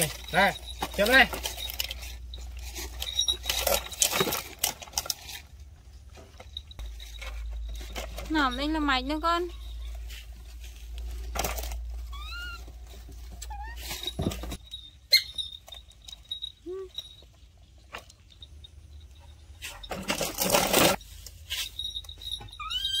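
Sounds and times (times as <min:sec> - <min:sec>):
baby monkeys squeaky calls: 0:12.1 - 0:12.7, 0:22.6 - 0:23.0.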